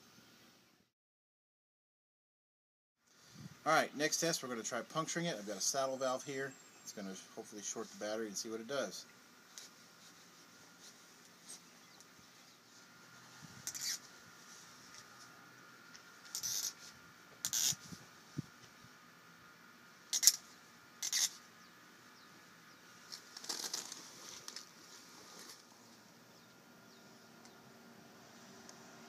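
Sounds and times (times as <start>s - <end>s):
valve scraping and rustling: 9.4s - 18.8s, 20.1s - 21.5s, 23.0s - 26.0s.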